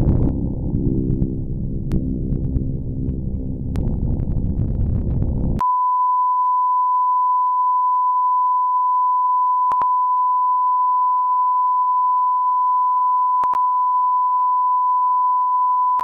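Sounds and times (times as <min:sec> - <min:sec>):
low rumbling drone: 0:00.0 - 0:05.6
steady pure beep tone: 0:05.6 - 0:16.0.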